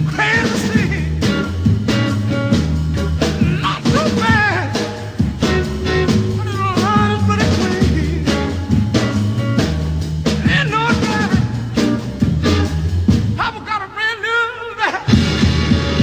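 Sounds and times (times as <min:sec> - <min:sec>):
man singing: 0:00.0 - 0:01.6, 0:03.0 - 0:08.9, 0:10.4 - 0:12.0, 0:13.4 - 0:15.2
steady drum beat: 0:00.0 - 0:13.6, 0:15.1 - 0:16.0
rhythm and blues band: 0:00.0 - 0:16.0.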